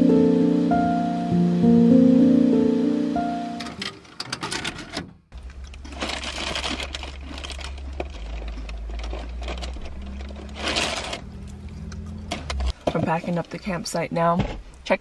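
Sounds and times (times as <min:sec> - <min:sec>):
small objects clicking and rustling: 0:03.8 - 0:12.8.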